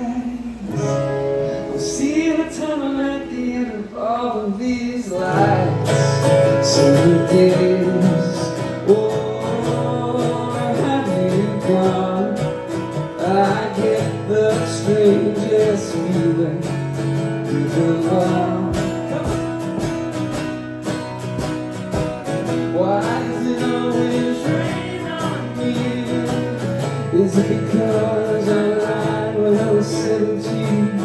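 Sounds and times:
man singing: 0.0s - 20.4s, 21.9s - 31.0s
acoustic guitars strummed: 0.0s - 31.0s.

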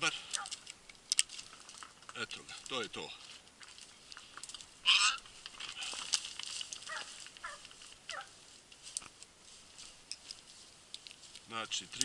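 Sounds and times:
dry brush crackling: 0.0s - 12.0s
wild boar squealing: 4.8s - 5.3s.

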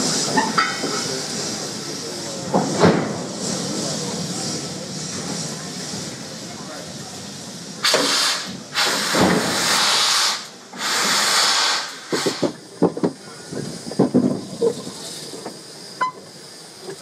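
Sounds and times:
steam locomotive hissing: 0.0s - 17.0s
wheels clanking and knocking: 12.1s - 17.0s.

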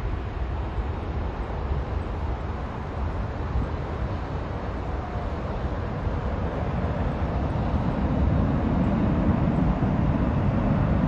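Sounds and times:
distant jet engines rumbling: 2.2s - 11.0s.

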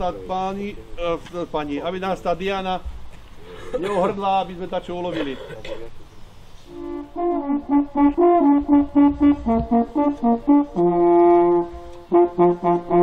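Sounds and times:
brass horns playing fanfare: 6.7s - 13.0s.

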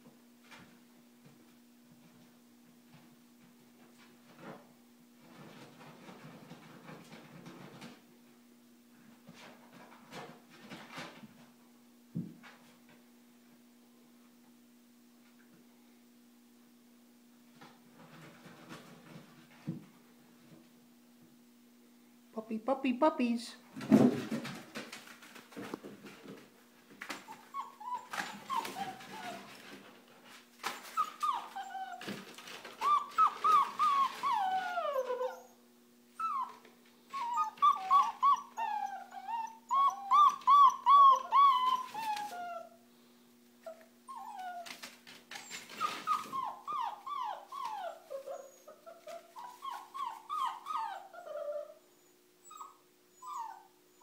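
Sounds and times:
puppies whining and yelping: 27.1s - 29.8s, 30.6s - 42.8s, 43.6s - 54.0s.

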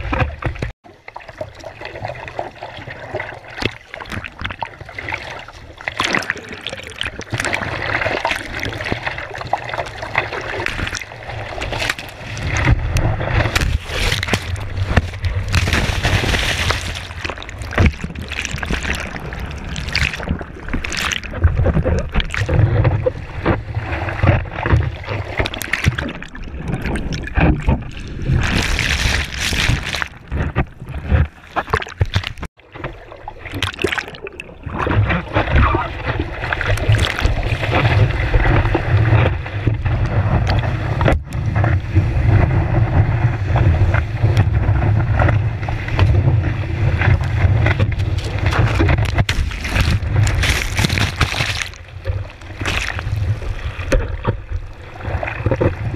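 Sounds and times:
seawater splashing and sloshing: 0.0s - 55.9s
low rumbling churn of surf: 37.4s - 55.9s.

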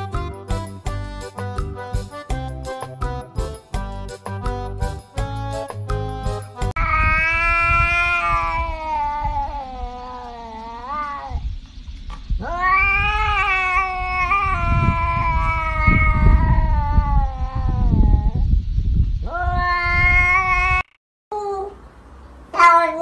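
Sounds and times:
cat yowling: 6.8s - 11.4s, 12.4s - 18.4s, 19.2s - 21.7s, 22.5s - 23.0s.

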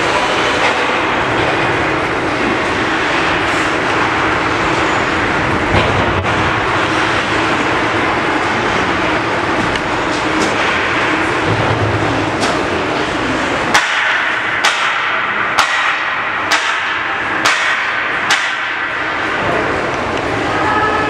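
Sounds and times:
ice arena background noise: 0.0s - 21.0s
sharp hits: 13.7s - 19.7s.

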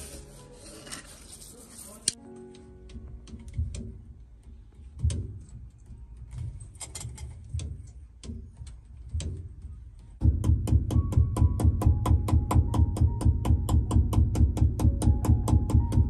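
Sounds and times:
metal chain clicking: 5.8s - 8.0s
music with steady beat: 10.1s - 16.0s.

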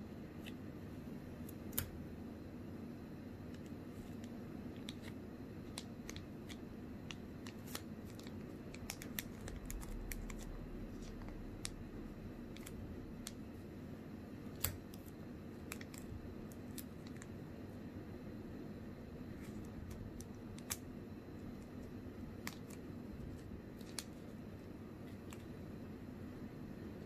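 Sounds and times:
paper snap: 1.4s - 2.0s, 3.5s - 11.8s, 12.5s - 13.4s, 14.5s - 17.3s, 19.4s - 20.8s, 22.4s - 24.2s.

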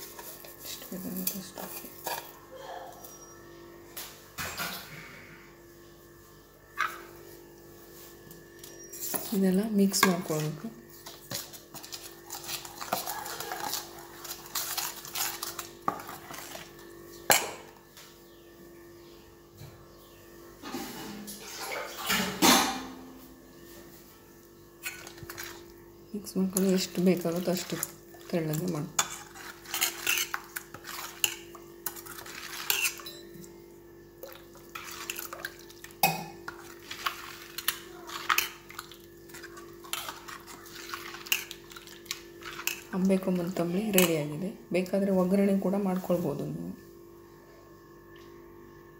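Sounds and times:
spoon stirring in steel bowl: 0.0s - 3.2s, 8.0s - 17.6s, 24.8s - 33.6s, 34.2s - 46.4s
spoon clanking on bowl: 28.5s - 33.4s, 34.8s - 42.9s.

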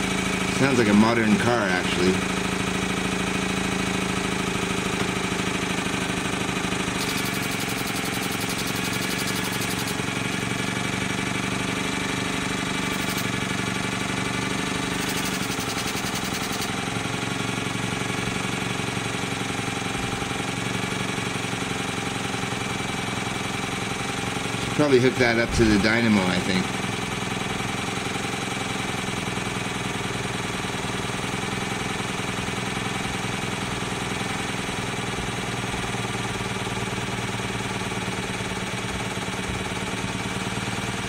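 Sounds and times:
model steam engine running: 6.7s - 17.2s.

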